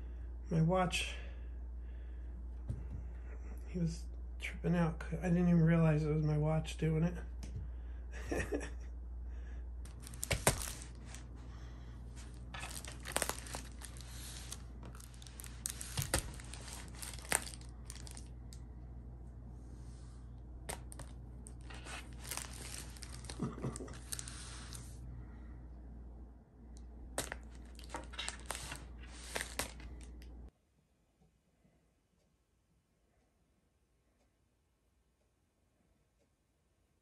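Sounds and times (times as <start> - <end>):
rustling and crinkling: 9.9 - 18.4, 20.6 - 25.0, 27.2 - 30.4.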